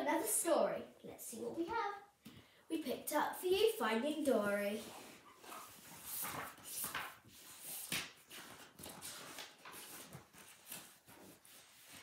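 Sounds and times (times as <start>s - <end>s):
book rustling and handling: 4.8s - 12.0s.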